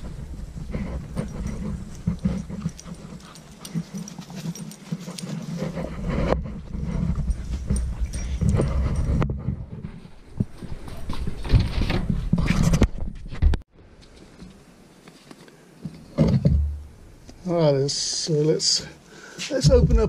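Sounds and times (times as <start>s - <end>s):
footsteps on grass and concrete: 19.4s - 20.0s.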